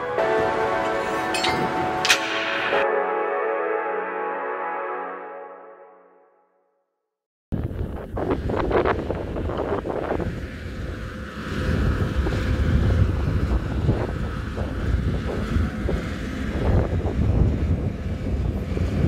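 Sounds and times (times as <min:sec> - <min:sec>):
wind buffeting microphone: 0:07.5 - 0:19.0.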